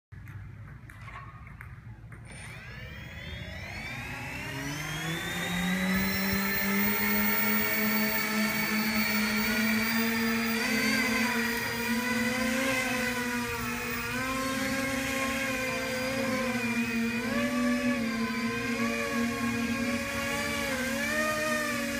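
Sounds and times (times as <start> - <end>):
drone propellers whining: 2.0 - 21.9.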